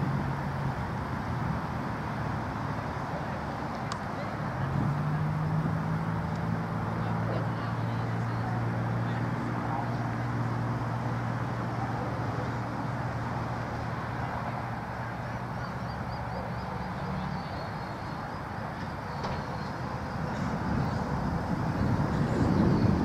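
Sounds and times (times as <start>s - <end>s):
low engine-like hum: 0.0s - 23.0s
rough wind-like noise: 19.5s - 23.0s.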